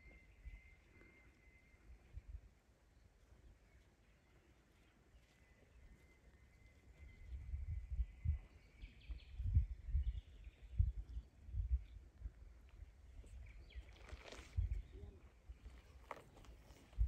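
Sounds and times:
wind buffeting microphone: 7.0 - 17.0.

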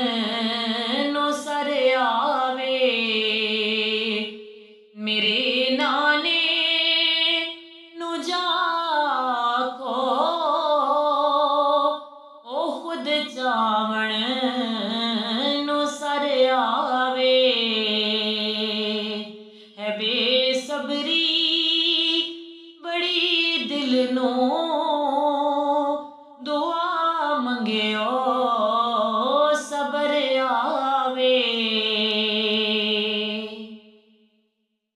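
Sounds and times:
woman singing devotional song: 0.0 - 34.0.

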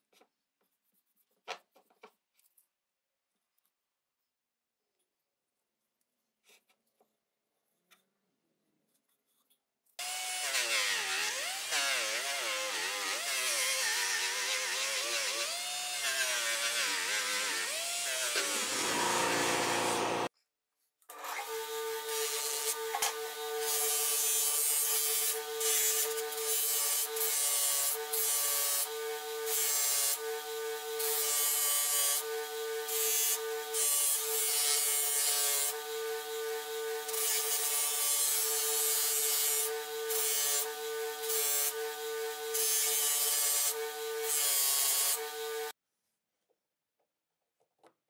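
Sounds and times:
buffing machine humming: 18.8 - 20.3.

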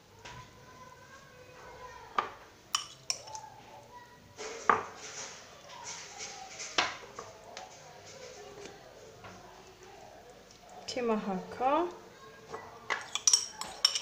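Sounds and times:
metal spoon clinking on tray: 2.7 - 3.4, 12.9 - 14.0
spoon scraping tray: 4.4 - 8.6.

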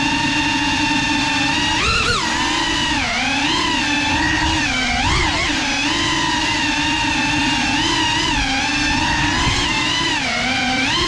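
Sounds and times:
drone propellers whining: 0.0 - 11.0.

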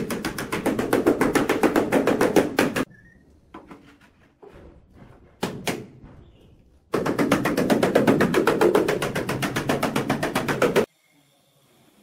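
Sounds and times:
handling and scraping: 3.5 - 5.4.

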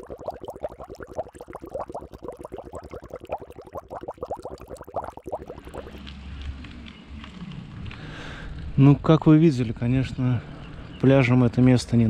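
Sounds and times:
water sloshing and splashing: 0.0 - 6.0.

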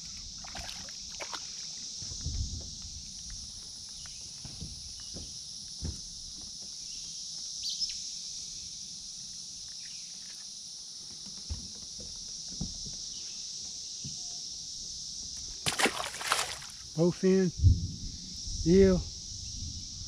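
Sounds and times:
high-pitched insect drone: 0.0 - 20.0.

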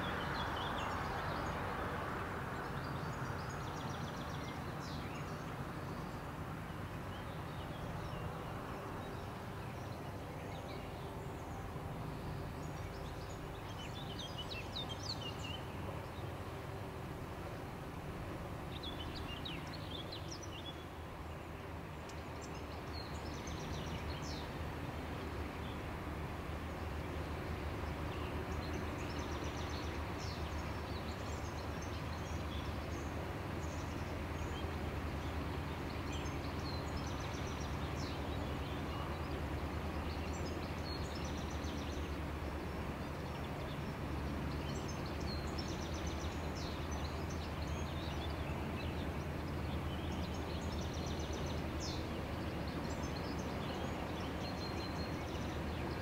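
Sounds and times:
small birds chirping: 27.8 - 56.0.

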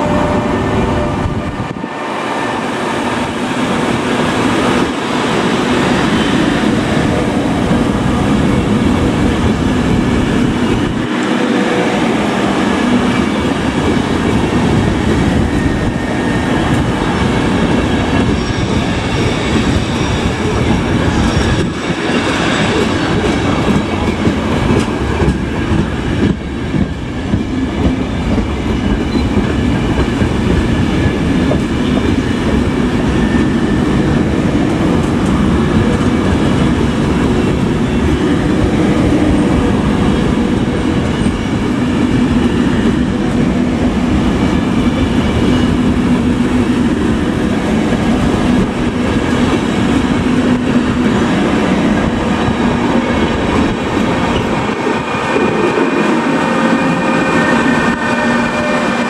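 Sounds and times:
train wheels running on rails: 0.0 - 59.0.

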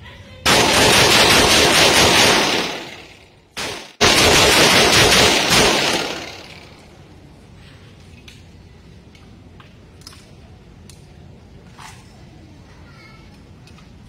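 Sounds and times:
rapid pistol fire: 0.5 - 6.9.

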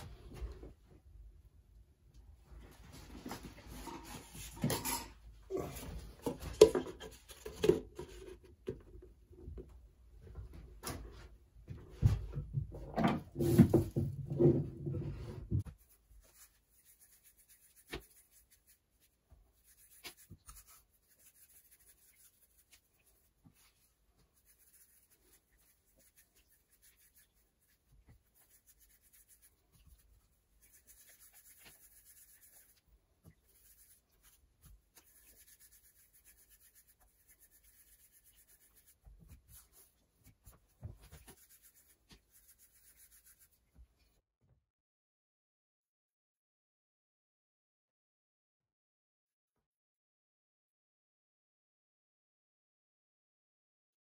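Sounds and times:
objects knocking and rubbing: 11.9 - 18.4.

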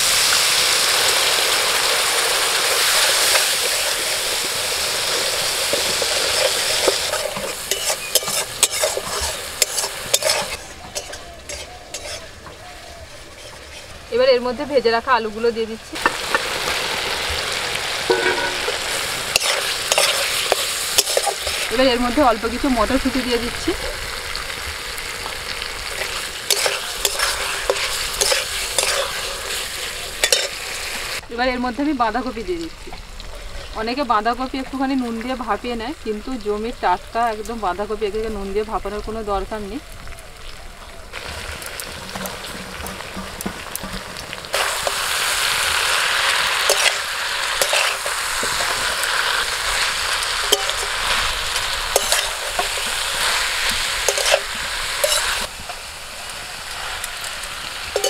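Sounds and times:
paste sizzling in hot oil: 0.0 - 58.0
metal spatula scraping pan: 5.6 - 12.6, 13.2 - 14.1, 18.1 - 21.8, 25.8 - 30.6, 46.5 - 55.5
water poured into hot oil: 41.1 - 58.0.

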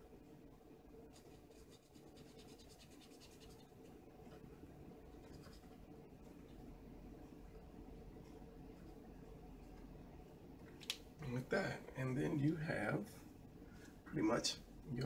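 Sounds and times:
steady low hum: 0.0 - 15.0
marker scratching on paper: 1.1 - 3.8.

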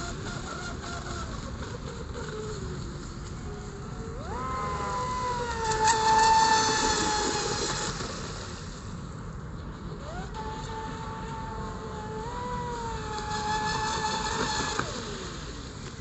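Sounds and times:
electric boat motor whining: 0.0 - 8.6, 9.8 - 16.0.

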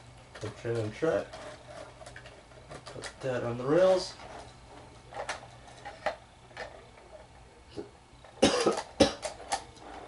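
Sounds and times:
man coughing: 8.4 - 9.3.

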